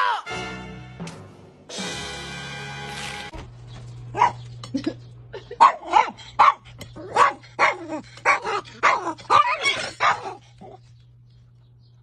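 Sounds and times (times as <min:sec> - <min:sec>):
small dog barking: 0:04.1 - 0:04.4, 0:05.6 - 0:10.4.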